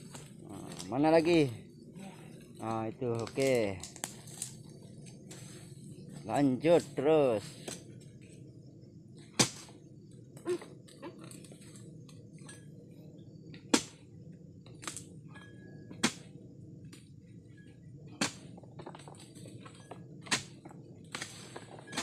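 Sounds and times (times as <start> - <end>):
blade chopping into palm crown: 9.4 - 9.7.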